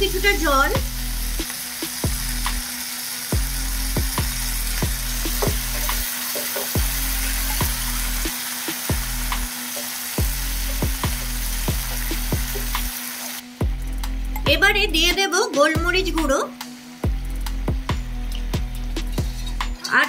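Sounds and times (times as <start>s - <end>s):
gravy sizzling in a pan: 0.1s - 13.6s.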